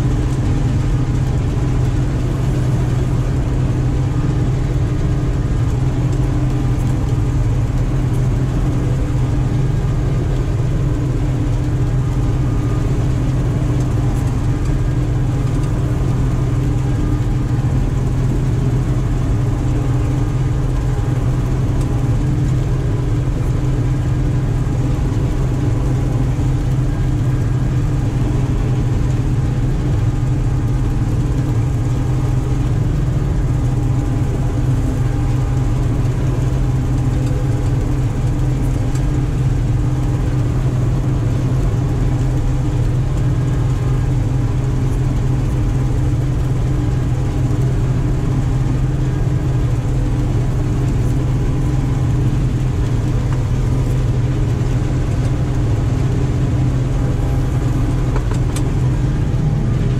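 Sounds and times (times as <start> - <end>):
combine harvester engine drone: 0.0 - 59.9.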